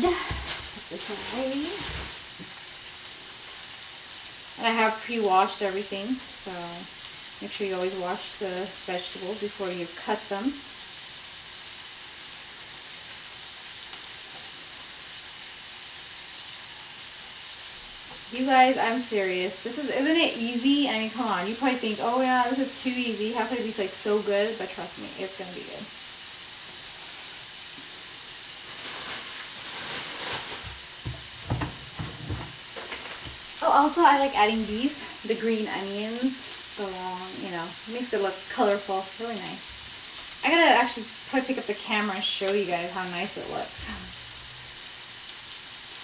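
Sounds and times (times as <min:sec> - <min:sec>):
rustle: 0:00.0 - 0:04.5, 0:26.1 - 0:31.4
food sizzling in a pan: 0:00.0 - 0:46.0.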